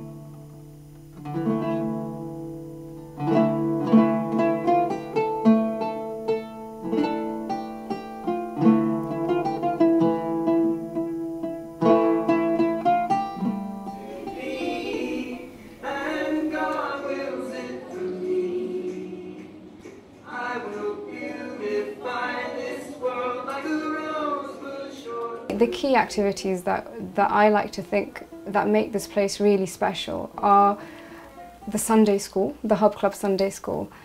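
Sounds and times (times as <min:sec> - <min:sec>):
plucked string melody: 0:00.0 - 0:15.8, 0:25.5 - 0:32.0
people singing: 0:13.4 - 0:25.7.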